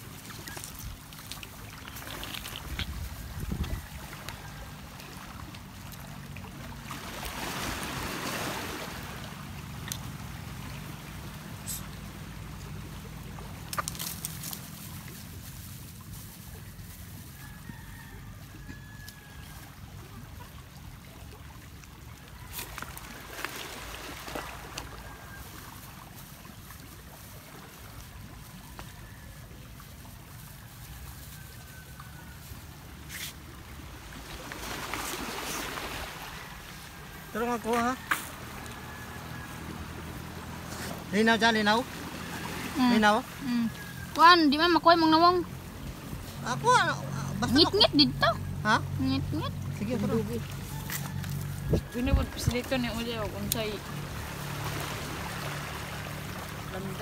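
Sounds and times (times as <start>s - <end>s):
waves on pebble shore: 0.0s - 17.6s, 22.4s - 28.8s, 29.4s - 47.9s, 48.5s - 57.0s
wind: 0.0s - 57.0s
distant chicken calls: 35.4s - 41.0s, 50.6s - 52.1s.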